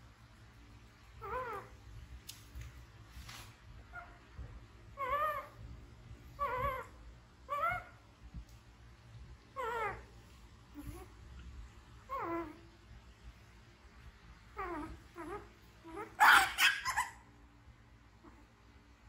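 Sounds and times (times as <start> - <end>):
baby monkey whimper calls: 6.4 - 8.0, 9.6 - 10.0, 14.6 - 17.2
baby monkey squeak: 15.9 - 17.2.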